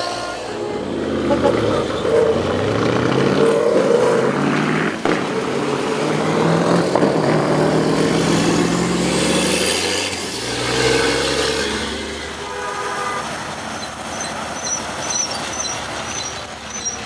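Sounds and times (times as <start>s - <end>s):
truck engine passing: 0.0s - 12.4s
tyre noise on wet road: 0.0s - 17.0s
vehicle engines humming: 0.0s - 17.0s.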